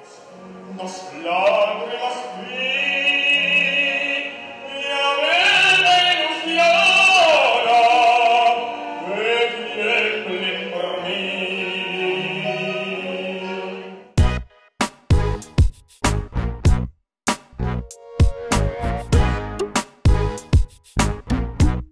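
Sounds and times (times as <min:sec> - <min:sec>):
small orchestra: 0:00.0 - 0:14.5
tenor singing operatically: 0:00.2 - 0:14.1.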